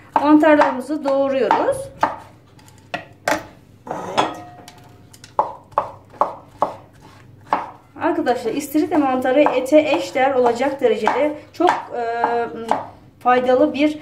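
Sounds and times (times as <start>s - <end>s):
knife chopping on wooden board: 0.1s - 2.3s, 5.4s - 7.8s, 9.3s - 12.9s.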